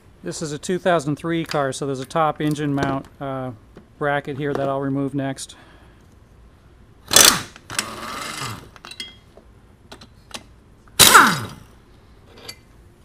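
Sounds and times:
air wrench bursts: 7.1s - 8.8s, 11.0s - 11.7s.

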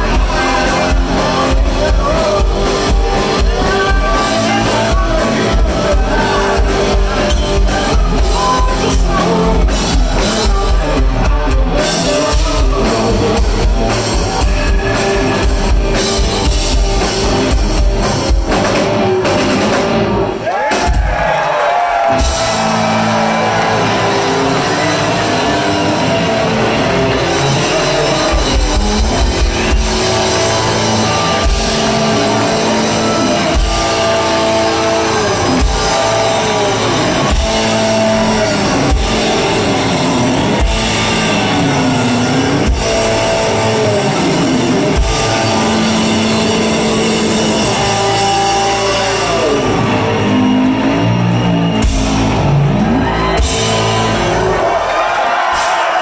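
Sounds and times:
drum kit: 0.0s - 56.0s
electric bass: 0.0s - 56.0s
electric guitar bending notes: 22.1s - 54.8s.

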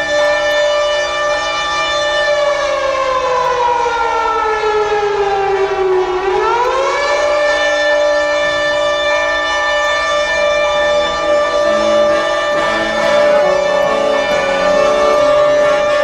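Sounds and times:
siren-like wail: 0.0s - 16.0s
steady sustained chord: 10.5s - 16.0s.

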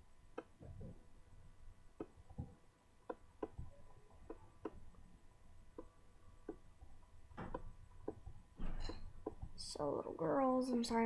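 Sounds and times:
computer mouse clicks: 2.0s - 2.4s, 3.0s - 4.8s.

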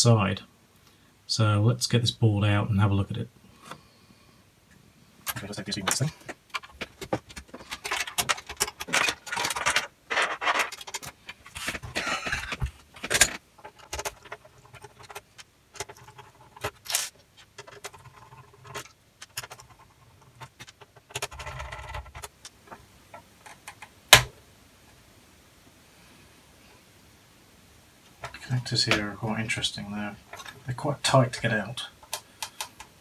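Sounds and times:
clicks scrapes and rattles in metal chassis: 5.3s - 22.8s.

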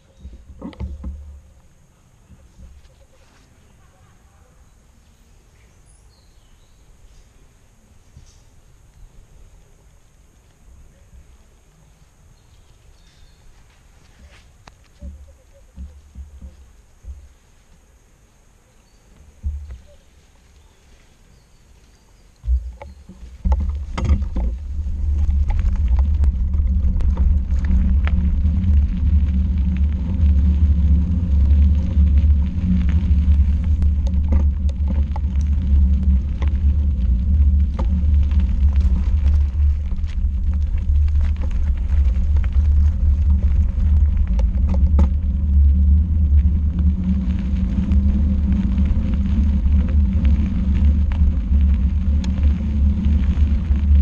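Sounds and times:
tyres rolling over gravel: 19.2s - 54.0s
wind on microphone: 22.4s - 54.0s.

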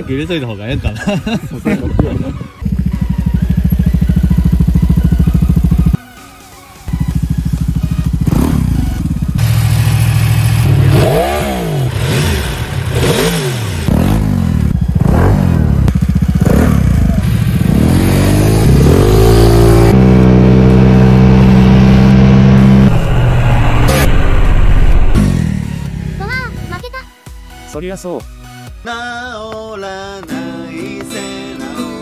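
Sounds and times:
scooter engine revving: 2.3s - 6.0s, 7.0s - 26.2s.

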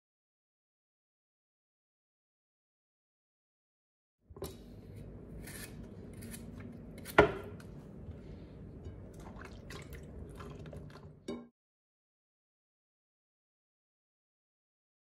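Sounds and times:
knife scraping and tapping: 4.4s - 7.7s
low steady background hum: 4.4s - 11.4s.

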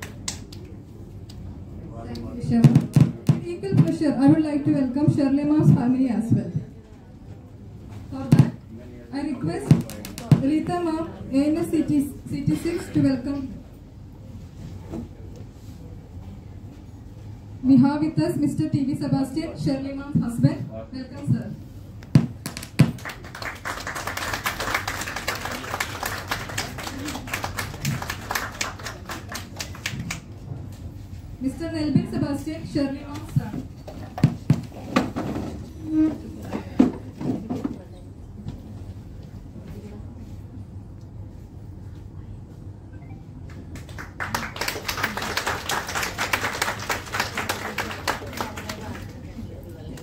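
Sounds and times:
low room murmur: 0.0s - 50.0s
audience applauding: 22.5s - 30.2s, 43.5s - 49.2s.

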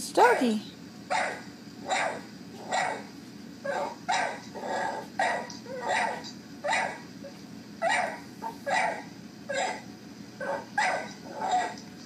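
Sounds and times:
dog barking: 1.1s - 3.1s, 3.7s - 7.0s, 7.8s - 9.8s, 10.4s - 11.8s.

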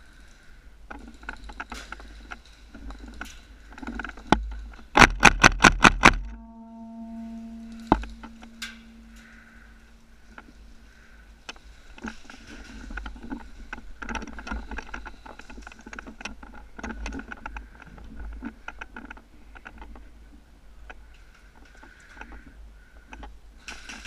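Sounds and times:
low rumble of movement: 6.2s - 22.6s.

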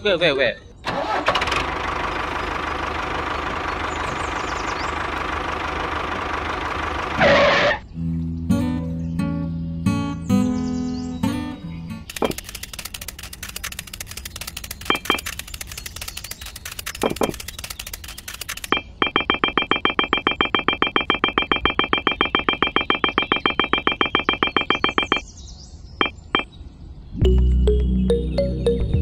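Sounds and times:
fast buzzing rattle: 12.1s - 25.2s
pulsing electronic ringing tone: 14.8s - 15.4s, 18.6s - 25.2s.

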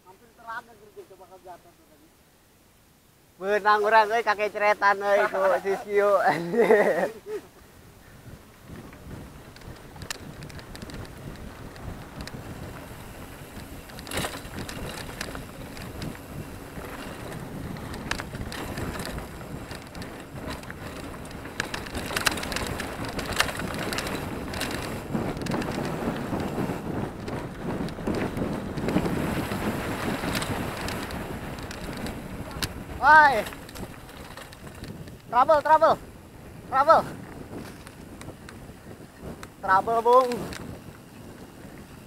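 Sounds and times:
bike tyre rumble on dirt: 3.5s - 42.0s
wind buffeting the microphone: 4.2s - 42.0s
bike rattling over bumps: 8.1s - 42.0s.

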